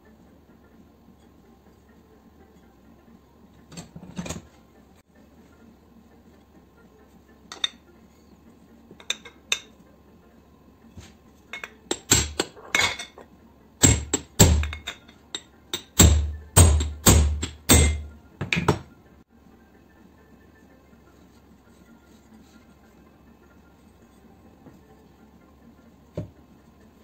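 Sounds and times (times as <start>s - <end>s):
hammer striking metal punch: 11.9s - 12.5s, 13.8s - 15.0s, 15.8s - 18.9s.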